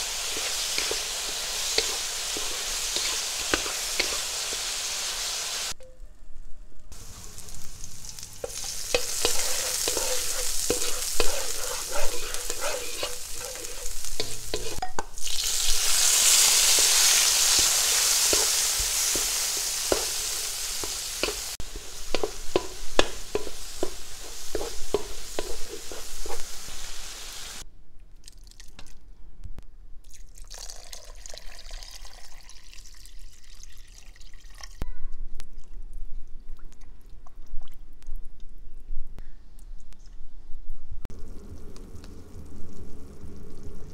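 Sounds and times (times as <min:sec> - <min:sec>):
spatula scraping a pan: 0:00.0 - 0:04.9, 0:08.4 - 0:14.9, 0:15.8 - 0:27.1
oil sizzling in a wok: 0:00.0 - 0:05.8, 0:07.0 - 0:27.6, 0:41.1 - 0:43.9.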